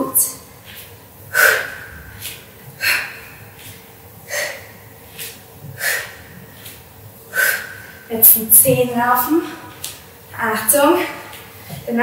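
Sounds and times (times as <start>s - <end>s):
woman breathing forcefully: 1.2s - 8.1s.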